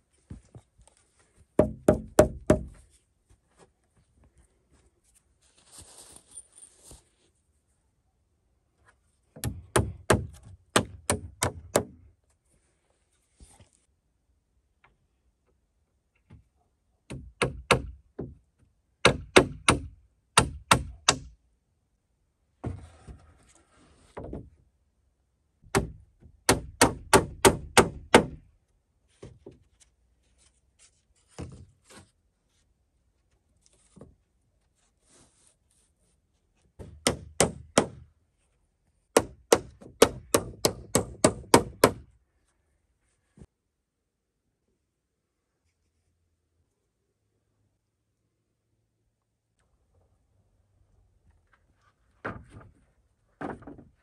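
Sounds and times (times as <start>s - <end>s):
hammer driving nails into wood: 1.6s - 2.8s, 9.4s - 12.0s, 17.1s - 18.3s, 19.0s - 21.4s, 25.7s - 28.4s, 36.8s - 38.1s, 39.1s - 42.1s.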